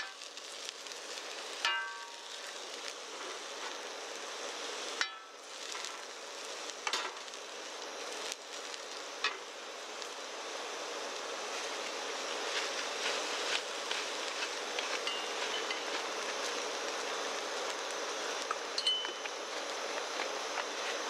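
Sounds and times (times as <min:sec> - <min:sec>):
food sizzling in a wok: 0:00.0 - 0:21.0
ladle clinking on wok: 0:01.6 - 0:02.2, 0:18.8 - 0:19.2
ladle scraping wok: 0:11.5 - 0:16.8.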